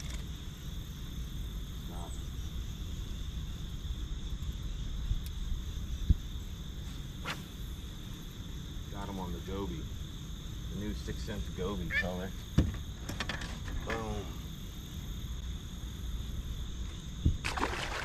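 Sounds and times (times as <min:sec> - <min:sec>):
insects trilling: 0:00.0 - 0:18.0.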